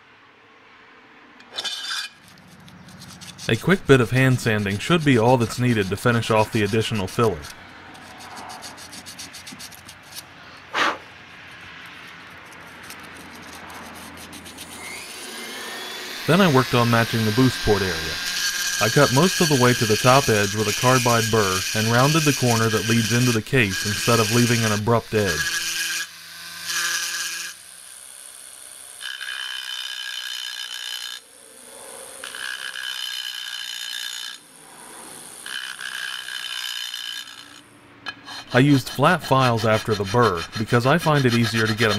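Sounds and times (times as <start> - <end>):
rotary tool whining: 1.4 - 41.9
sandpaper scratching: 1.7 - 15.2, 16.2 - 25.7, 38.1 - 41.9.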